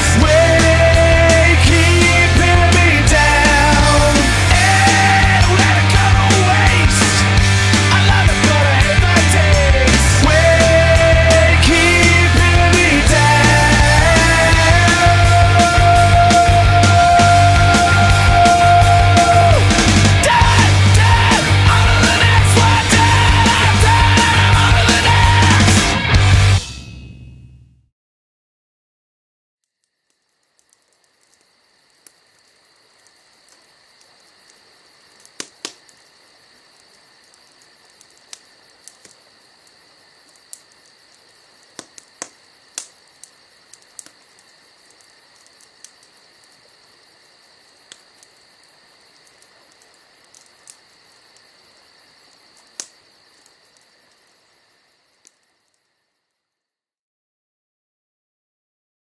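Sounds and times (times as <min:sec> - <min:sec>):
crickets chirring: 0:00.0 - 0:25.9, 0:29.6 - 0:56.8
sharp clicks: 0:35.2 - 0:36.0, 0:37.9 - 0:39.2, 0:40.2 - 0:46.2, 0:52.6 - 0:53.9.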